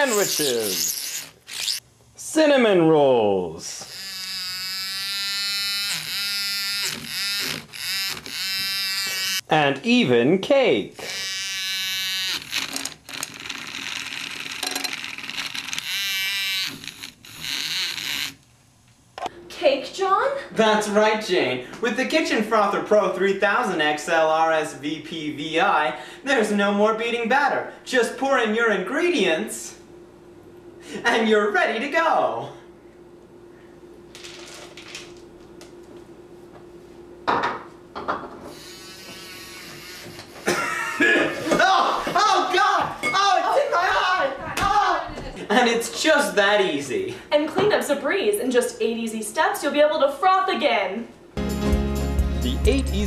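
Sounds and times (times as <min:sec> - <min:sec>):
frother scraping in plastic bowl: 0:00.0 - 0:01.8, 0:38.5 - 0:40.4
small motor whine: 0:00.0 - 0:01.8, 0:03.8 - 0:09.4, 0:11.0 - 0:18.4, 0:38.4 - 0:40.4
milk frother rattling: 0:12.4 - 0:18.4.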